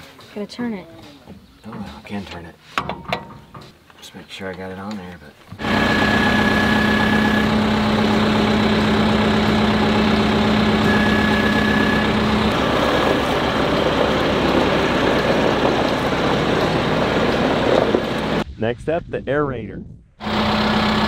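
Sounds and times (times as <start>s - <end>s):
tractor diesel engine running: 5.6s - 18.4s, 20.2s - 21.0s.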